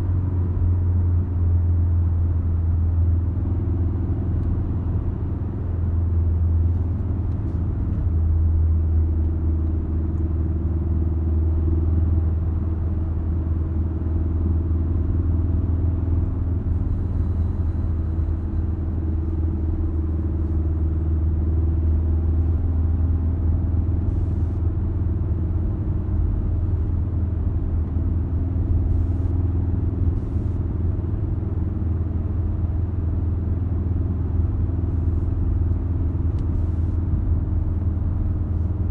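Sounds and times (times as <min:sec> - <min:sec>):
car engine and tyre drone: 0:00.0 - 0:38.9.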